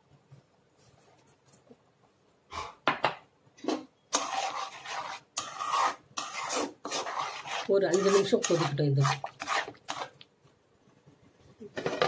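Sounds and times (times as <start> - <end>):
metal spoon scraping metal pan: 3.6 - 10.2.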